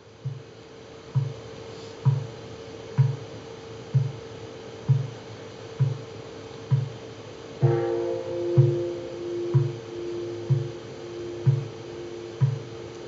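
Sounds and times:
bowl bell ringing: 7.6s - 13.0s.

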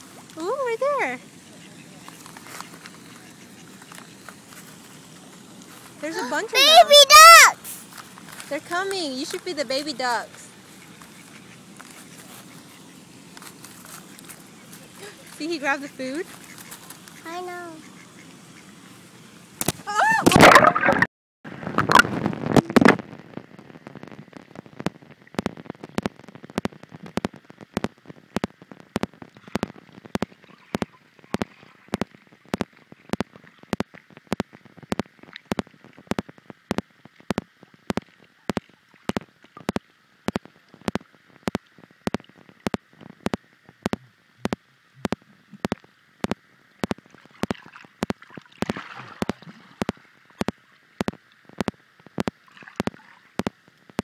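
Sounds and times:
faint underwater hum: 0.0s - 54.0s
splash into water: 19.6s - 21.1s, 46.8s - 50.0s, 52.4s - 53.4s.

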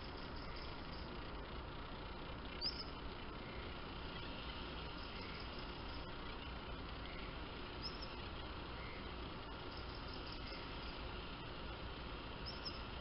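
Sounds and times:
faint high-pitched chirps: 0.0s - 1.2s, 2.5s - 4.3s, 4.9s - 11.1s, 12.4s - 13.0s
low hum: 0.0s - 13.0s
outdoor background hiss: 0.0s - 13.0s.

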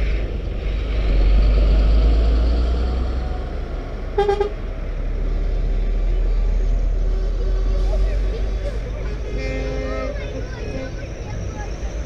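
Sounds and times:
diesel truck engine rumbling: 0.0s - 12.0s
vehicle horn toot: 4.2s - 4.6s.

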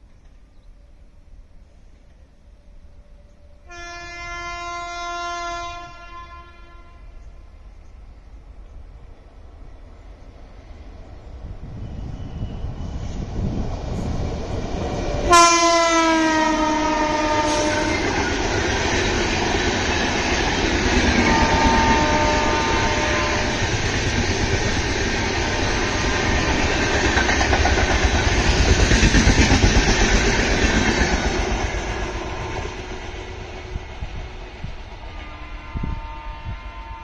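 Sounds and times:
train horn blast: 3.3s - 7.4s, 15.3s - 18.7s, 20.9s - 23.8s, 35.1s - 37.0s
train wheels clattering: 23.4s - 34.8s.

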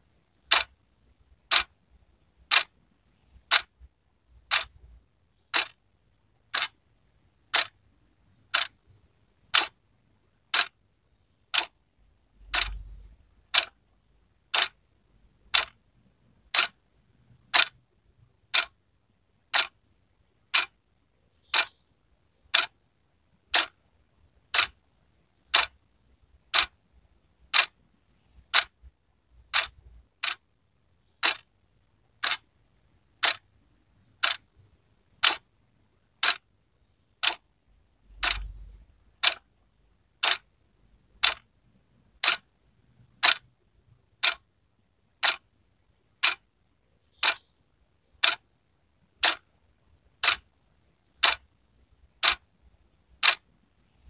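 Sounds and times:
wall clock ticking: 0.2s - 5.9s, 6.5s - 6.9s, 7.5s - 7.8s, 8.4s - 9.8s, 10.4s - 10.8s, 11.5s - 11.8s, 12.4s - 13.8s, 14.4s - 14.8s, 15.4s - 18.8s, 19.4s - 19.8s, 20.4s - 21.8s, 22.4s - 22.8s, 23.4s - 26.8s, 27.4s - 30.5s, 31.1s - 35.5s, 36.1s - 37.5s, 38.1s - 39.5s, 40.1s - 40.5s, 41.1s - 44.5s, 45.1s - 45.5s, 46.1s - 46.5s, 47.1s - 47.5s, 48.1s - 48.5s, 49.1s - 49.5s, 50.1s - 52.5s, 53.1s - 54.0s.

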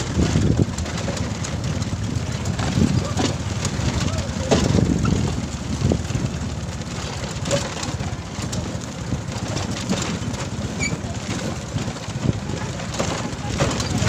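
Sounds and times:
motorcycle engine rumbling: 0.0s - 14.0s.

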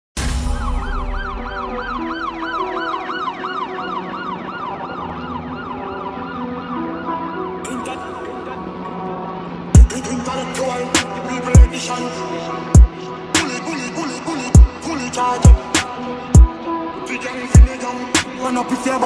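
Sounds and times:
warbling siren effect: 0.2s - 8.6s
low synth notes: 0.2s - 13.4s.

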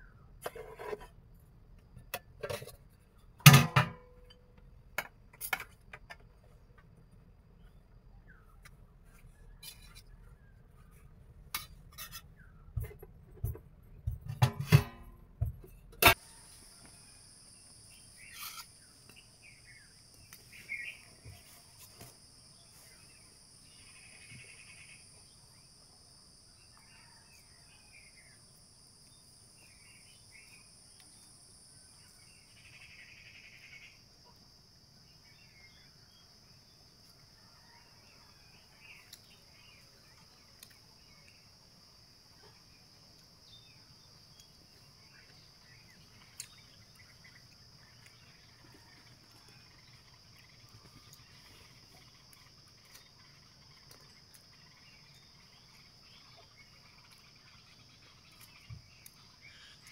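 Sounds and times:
metal pots and utensils clinking: 3.4s - 4.4s, 14.4s - 16.2s
insects buzzing: 38.8s - 59.9s.

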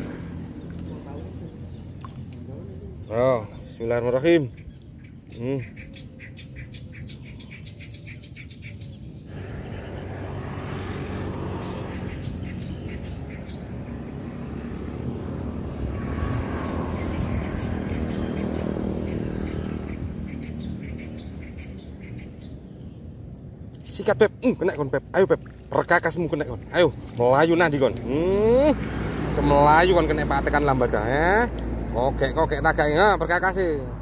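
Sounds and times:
vehicle passing by: 0.0s - 4.2s, 9.1s - 23.2s, 25.7s - 34.0s.

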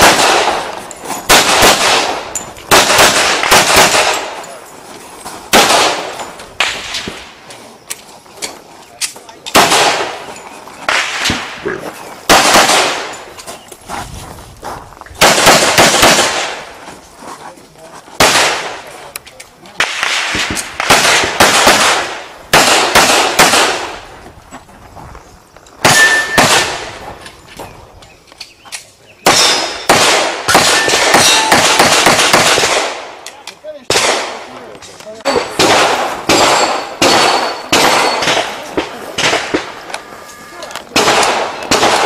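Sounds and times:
pistol shots with echo: 0.0s - 4.6s, 5.5s - 7.3s, 9.5s - 11.7s, 12.3s - 13.3s, 15.2s - 16.7s, 18.2s - 18.9s, 19.8s - 24.0s, 25.8s - 27.0s, 29.2s - 33.2s, 33.9s - 34.6s, 35.3s - 39.9s, 40.9s - 42.0s.

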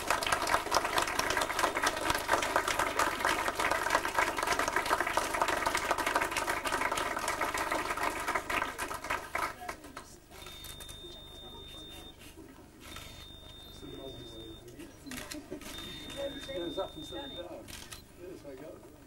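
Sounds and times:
group clapping: 0.0s - 11.0s.

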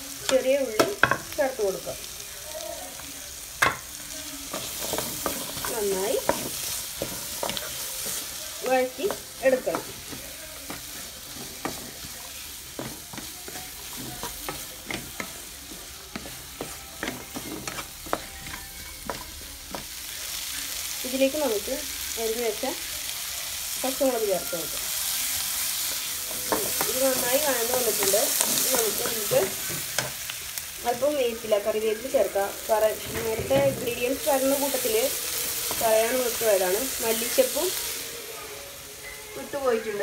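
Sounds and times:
onions sizzling in a pan: 0.0s - 40.0s
spatula scraping a pan: 9.1s - 19.3s.

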